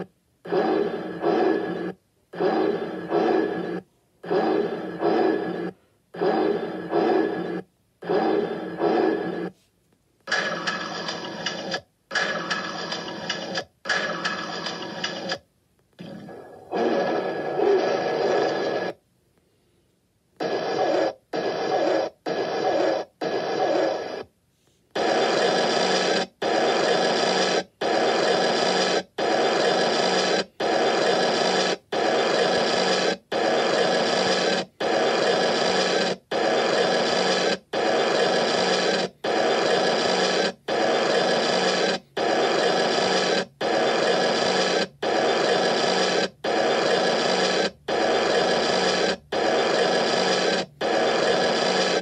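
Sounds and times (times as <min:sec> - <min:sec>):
electronic buzzing: 0:25.0 - 0:52.0.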